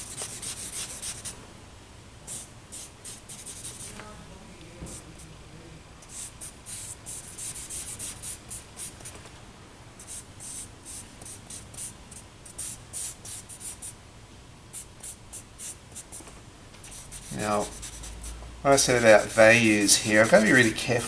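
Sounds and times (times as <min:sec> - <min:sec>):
charcoal scratching on paper: 0:00.0 - 0:01.3, 0:02.3 - 0:03.9, 0:06.1 - 0:09.1, 0:10.0 - 0:11.9, 0:12.5 - 0:13.9, 0:14.8 - 0:16.2, 0:16.8 - 0:21.0.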